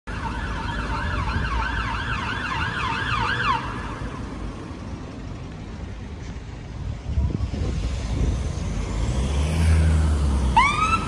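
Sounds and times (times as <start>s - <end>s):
fire engine siren wailing: 0.1s - 4.1s, 10.4s - 11.0s
low engine and traffic rumble: 0.1s - 11.0s.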